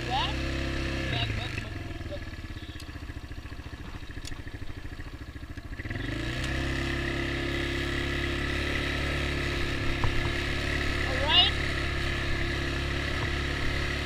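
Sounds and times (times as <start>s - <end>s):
atv engine idling and revving: 0.0s - 14.0s.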